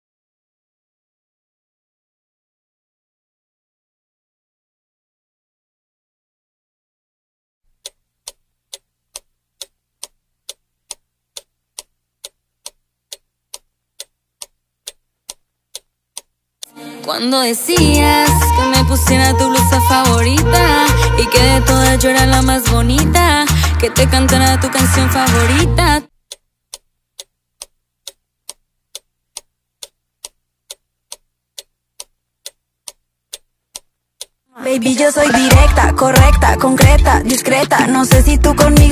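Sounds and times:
clock ticking: 7.8s - 16.7s, 17.6s - 34.4s, 35.5s - 38.9s.

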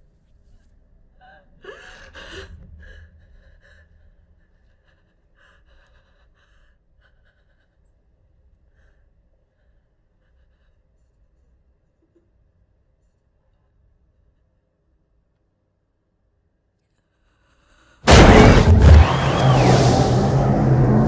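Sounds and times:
woman sobbing and gasping: 1.2s - 8.0s.

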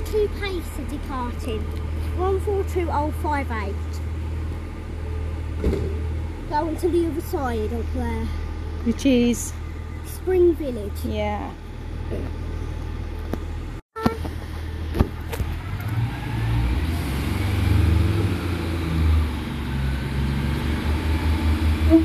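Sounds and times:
diesel train engine rumbling: 0.0s - 22.0s.

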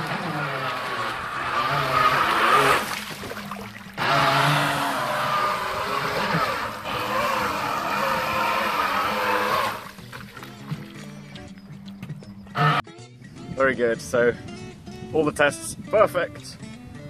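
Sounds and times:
water spray rushing: 0.0s - 10.7s
electric boat motor whining: 0.0s - 11.0s, 12.5s - 12.8s.

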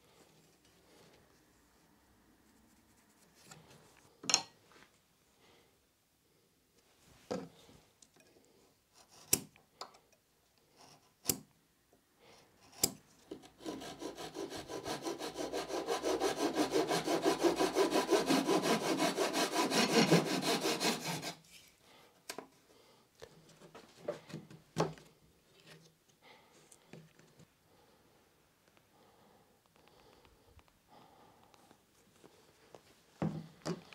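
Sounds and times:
hand saw cutting: 12.7s - 21.5s.

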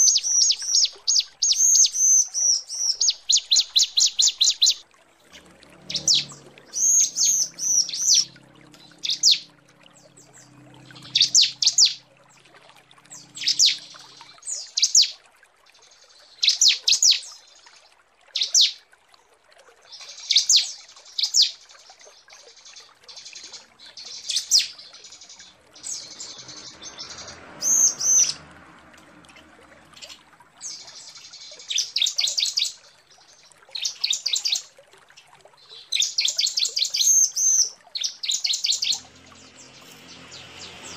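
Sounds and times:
bird rapid high chirping: 5.9s - 12.0s, 13.1s - 15.1s.

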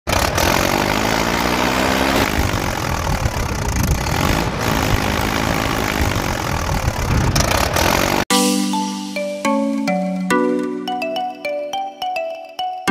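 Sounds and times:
tractor engine running: 0.1s - 8.3s
loud rushing noise: 1.4s - 8.3s.

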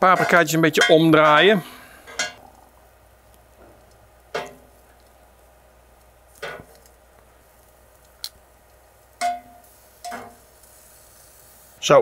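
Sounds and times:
metal tongs clacking on grill grate: 0.0s - 2.4s, 3.3s - 5.2s, 6.0s - 7.0s, 9.1s - 10.8s.

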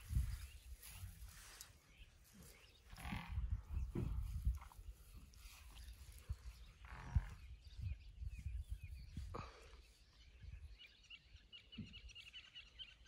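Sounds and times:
small birds chirping: 0.0s - 13.0s
low rumbling bumps: 3.0s - 8.7s.

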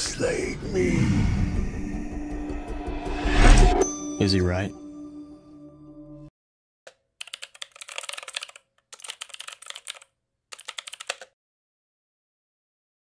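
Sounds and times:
computer keyboard typing: 6.9s - 11.4s.

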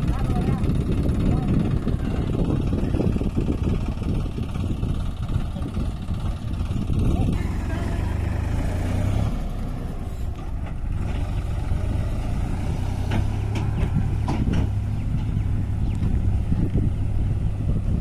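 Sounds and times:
diesel tractor engine running: 0.0s - 18.0s
trailer knocks: 12.9s - 15.5s.

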